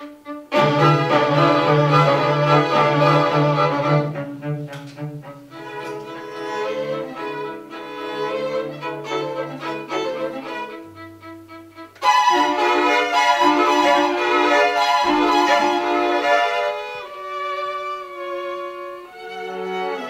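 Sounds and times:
string quartet playing: 0:00.0 - 0:20.0.

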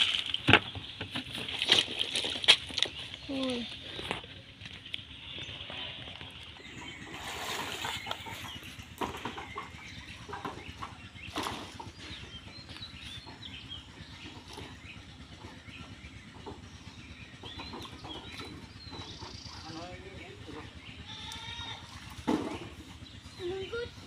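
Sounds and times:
water sloshing and splashing: 0:00.0 - 0:04.6, 0:06.8 - 0:12.2
small birds chirping: 0:00.3 - 0:24.0
chickens clucking: 0:03.9 - 0:24.0.

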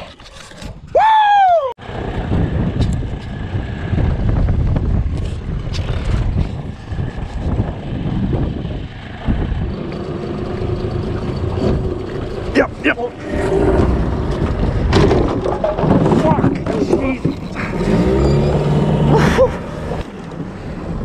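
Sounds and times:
wind rumbling on microphone: 0:00.0 - 0:21.0
person whooping shout: 0:00.9 - 0:01.8.

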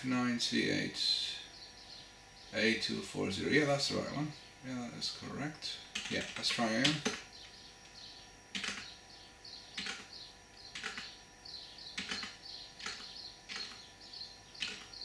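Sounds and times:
keyboard keystroke clicks: 0:08.6 - 0:08.9, 0:10.7 - 0:11.1.

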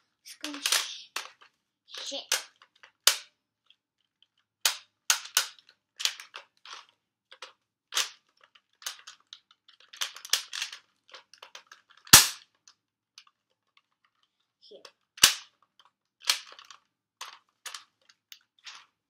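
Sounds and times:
plastic toy blaster clicks: 0:00.4 - 0:03.3, 0:04.6 - 0:06.4, 0:09.9 - 0:10.8, 0:11.4 - 0:12.5, 0:15.2 - 0:15.5, 0:16.2 - 0:16.8.

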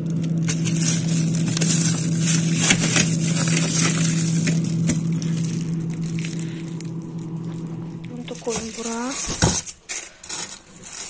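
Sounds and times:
low freezer hum: 0:00.0 - 0:11.0
plastic bags crinkling: 0:00.0 - 0:11.0.

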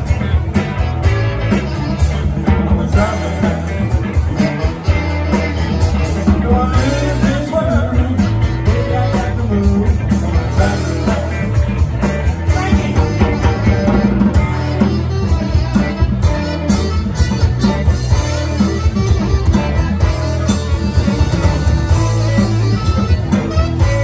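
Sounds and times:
drums: 0:00.0 - 0:24.0
electric bass: 0:00.0 - 0:24.0
electric guitar: 0:00.0 - 0:24.0
man singing: 0:01.7 - 0:14.6.

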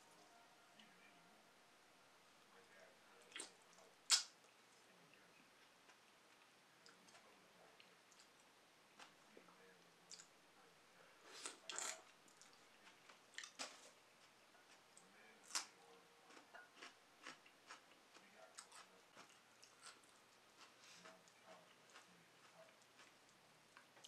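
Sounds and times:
chewing and wet mouth clicks: 0:11.7 - 0:13.8.

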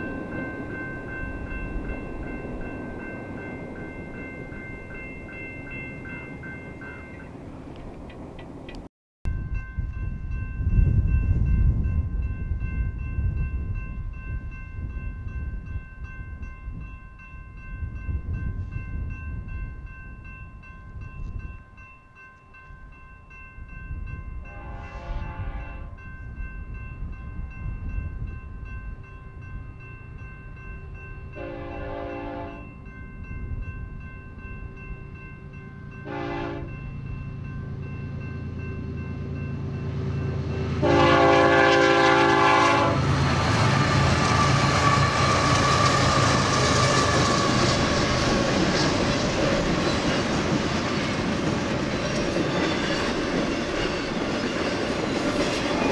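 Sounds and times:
train air horn blasts: 0:24.5 - 0:26.0, 0:31.4 - 0:32.7, 0:36.0 - 0:36.8, 0:40.8 - 0:43.2
diesel locomotive rumbling: 0:33.4 - 0:55.9.

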